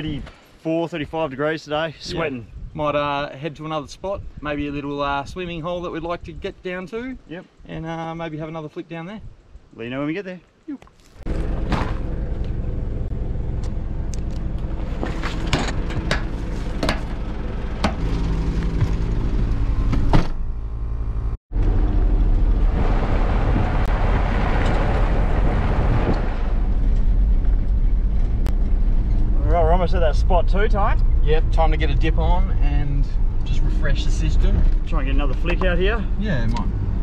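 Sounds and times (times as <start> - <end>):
vehicle engine running: 11.3 - 37.0.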